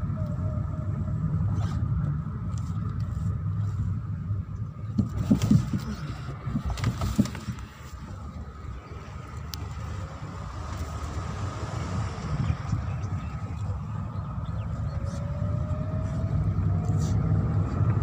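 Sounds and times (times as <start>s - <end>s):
car engine and tyre rumble: 0.0s - 18.0s.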